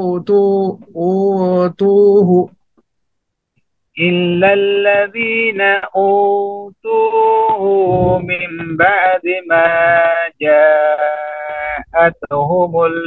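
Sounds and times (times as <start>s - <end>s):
man chanting melodically: 4.0s - 13.0s.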